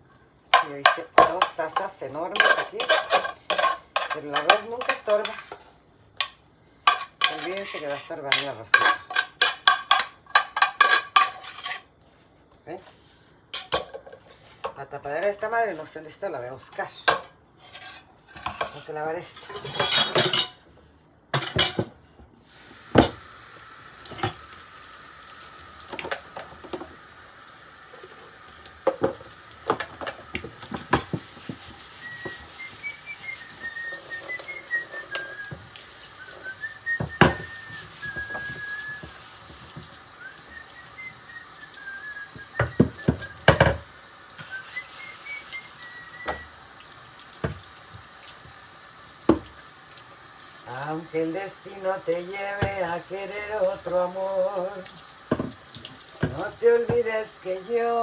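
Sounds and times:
dishes clattering in a sink: 0:00.5 - 0:11.9, 0:13.5 - 0:14.8, 0:16.8 - 0:20.6, 0:21.3 - 0:22.0, 0:22.9 - 0:23.3, 0:25.9 - 0:27.0, 0:28.8 - 0:39.9, 0:42.3 - 0:46.5, 0:47.4 - 0:48.0, 0:49.2 - 0:49.6, 0:55.3 - 0:57.2
running tap water: 0:22.5 - 0:58.0
person whistling: 0:32.0 - 0:39.2, 0:40.2 - 0:43.6, 0:44.4 - 0:46.6.

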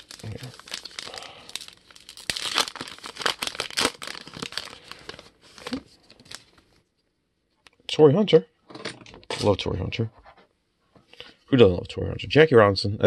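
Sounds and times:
cards rustling: 0:00.0 - 0:06.7
wrapper crinkling and tearing: 0:00.0 - 0:06.7.

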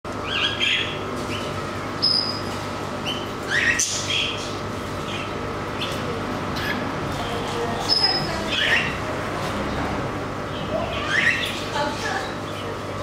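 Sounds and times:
cockatiels chirping: 0:00.2 - 0:02.4, 0:03.0 - 0:06.0, 0:06.6 - 0:06.8, 0:07.8 - 0:09.0, 0:10.5 - 0:11.6.

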